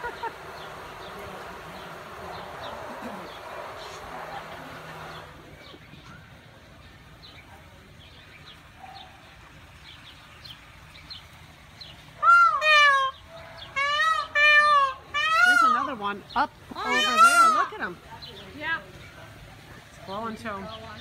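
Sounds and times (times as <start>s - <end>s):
peacock calling: 11.8s - 19.3s.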